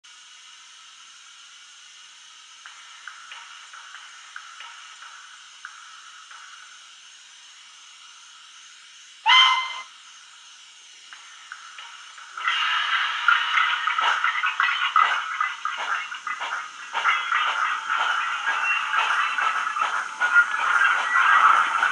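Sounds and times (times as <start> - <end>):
idling hiss with light ticks: 0.0 - 21.9
steam hiss with chuffs: 0.1 - 21.9
steam whistle blast: 9.2 - 9.9.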